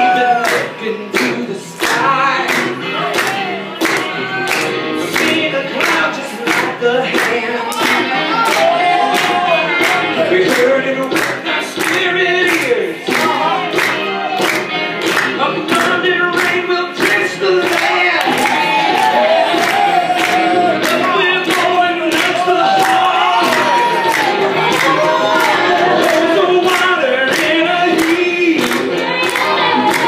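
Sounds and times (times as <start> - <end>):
group singing worship song: 23.0 - 30.0.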